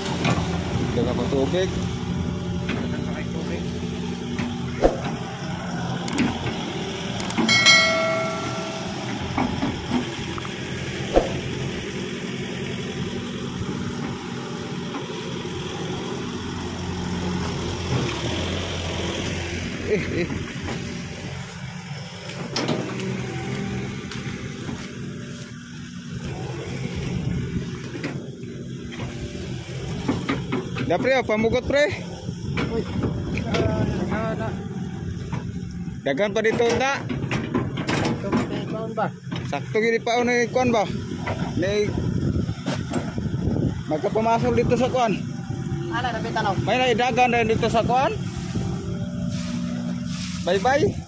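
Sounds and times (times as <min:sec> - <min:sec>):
excavator diesel engine running: 0:00.0 - 0:51.0
ringing metallic squeal: 0:07.5 - 0:09.6.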